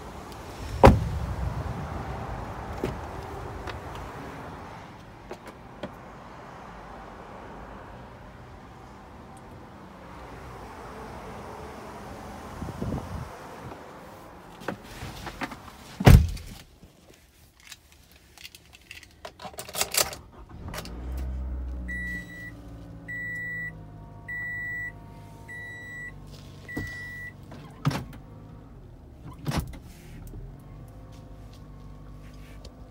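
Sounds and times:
car engine starting and idling: 0:00.0 - 0:16.6, 0:19.6 - 0:32.9
car door shutting: 0:00.6 - 0:01.6, 0:02.6 - 0:04.1, 0:14.6 - 0:16.6, 0:26.5 - 0:28.4
dashboard warning chime: 0:21.9 - 0:27.4.

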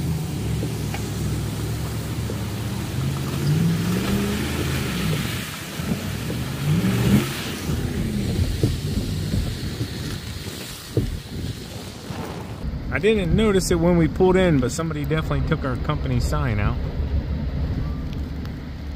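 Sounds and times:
freezing rain hissing: 0:00.0 - 0:12.7
vehicle engine revving: 0:00.0 - 0:13.5.

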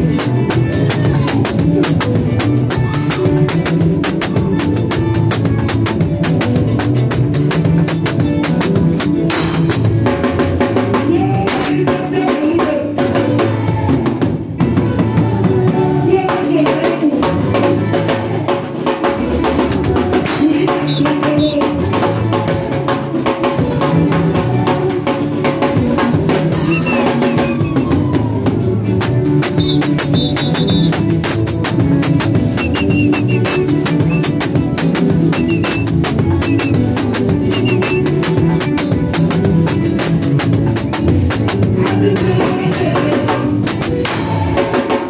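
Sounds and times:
drum kit playing: 0:00.0 - 0:45.0
keyboard playing: 0:19.2 - 0:44.7.

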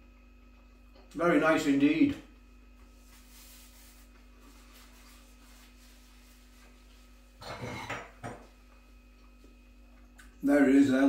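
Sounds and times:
steady low hum: 0:00.0 - 0:11.0
paper napkin rustle: 0:02.8 - 0:07.4
ceramic plate scraping: 0:07.4 - 0:08.2.

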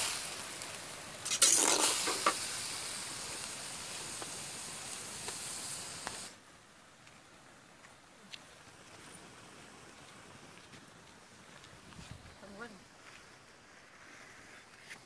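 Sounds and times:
food sizzling in a wok: 0:00.0 - 0:06.4
ladle scraping: 0:01.2 - 0:02.4.

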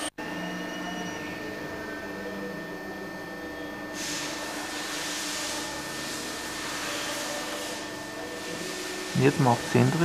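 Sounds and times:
fan whirring: 0:00.0 - 0:10.0
bright hiss: 0:03.9 - 0:09.9.

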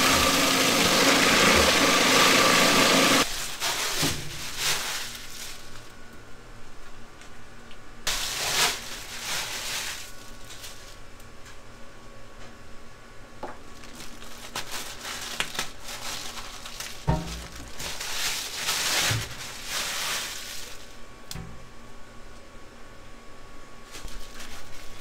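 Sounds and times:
plastic bag crinkling: 0:03.2 - 0:05.9, 0:08.1 - 0:11.0, 0:13.7 - 0:21.0.

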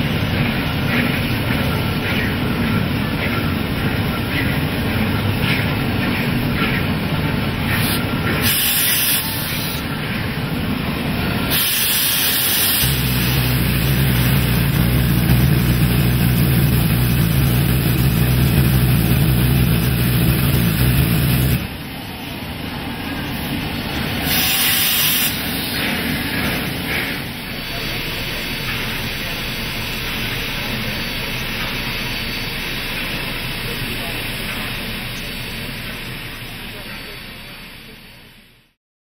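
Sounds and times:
steam locomotive rumble: 0:00.0 - 0:38.7
steam hissing: 0:07.6 - 0:10.0, 0:11.3 - 0:22.3, 0:23.2 - 0:38.3
low drone: 0:12.8 - 0:21.8.

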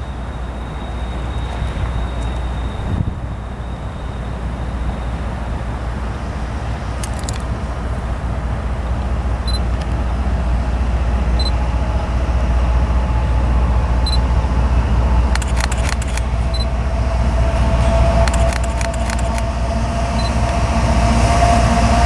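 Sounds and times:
locomotive rumble: 0:00.0 - 0:22.0
sharp clicks: 0:07.0 - 0:07.5, 0:15.3 - 0:16.3, 0:18.2 - 0:19.5.

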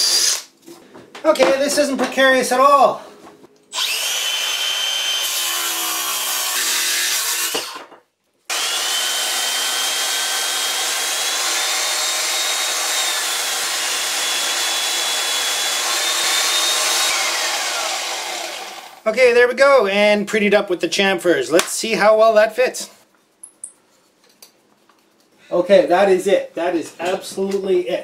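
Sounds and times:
power tool on wood: 0:03.7 - 0:07.9, 0:08.5 - 0:19.0.

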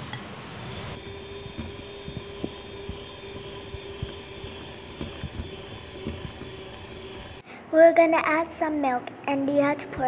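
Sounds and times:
electric hand mixer humming: 0:00.7 - 0:07.4.

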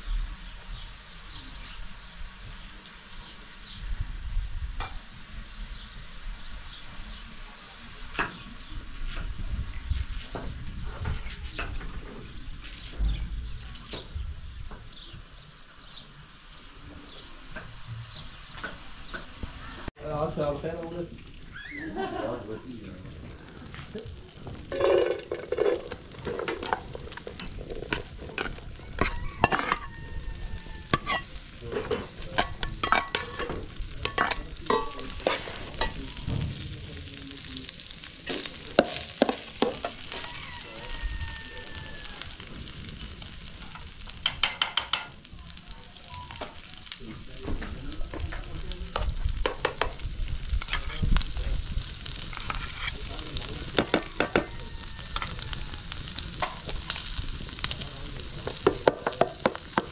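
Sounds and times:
onions sizzling in a pot: 0:00.0 - 0:59.9
metal spoon scraping a pot: 0:24.7 - 0:29.9, 0:30.8 - 0:36.0.

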